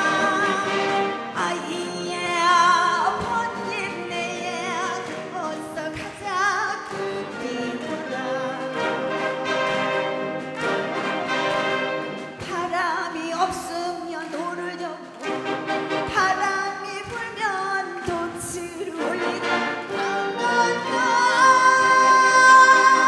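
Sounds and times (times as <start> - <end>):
wind band playing: 0.0 - 5.9, 6.8 - 12.8, 15.1 - 16.8, 18.8 - 23.0
woman singing into microphone: 0.0 - 8.9, 12.4 - 15.1, 16.1 - 19.6, 20.4 - 23.0.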